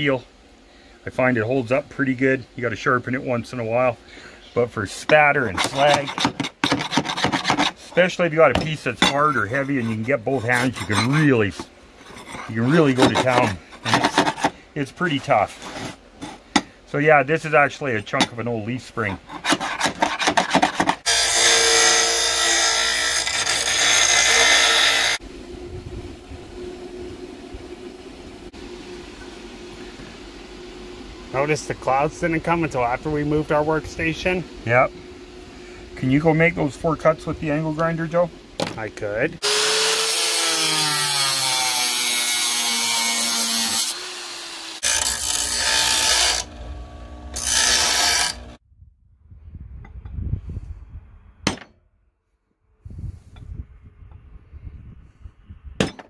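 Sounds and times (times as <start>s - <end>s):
metal scraping against steel plate: 4.9s - 14.6s, 19.0s - 25.2s
bench grinder grinding steel: 4.9s - 16.7s, 18.1s - 25.2s, 39.4s - 48.6s.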